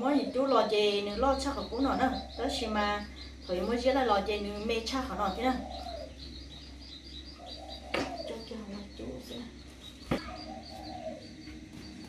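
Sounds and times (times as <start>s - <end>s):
small bird chirping: 0.0s - 12.0s
sharp knocks: 7.9s - 8.3s, 10.0s - 10.4s.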